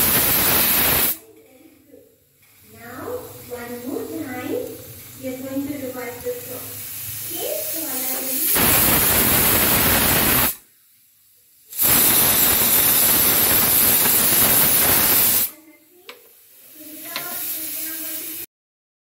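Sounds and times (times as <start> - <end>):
pressure cooker whistling: 0.0 - 1.2, 8.5 - 10.6, 11.8 - 15.5.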